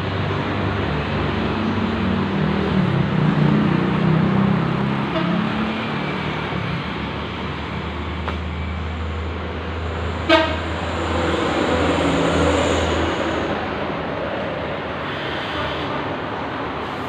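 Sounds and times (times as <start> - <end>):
short horn toot: 10.3 - 10.6.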